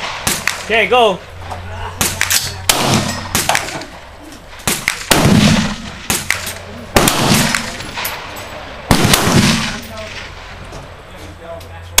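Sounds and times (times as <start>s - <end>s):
gunshots: 0.0s - 0.9s, 2.0s - 10.6s.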